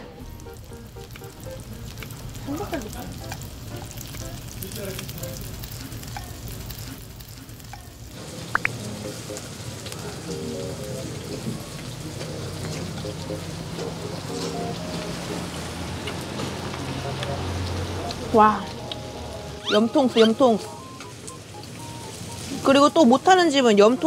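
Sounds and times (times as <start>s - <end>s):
meat sizzling on a grill pan: 0.3s - 13.4s.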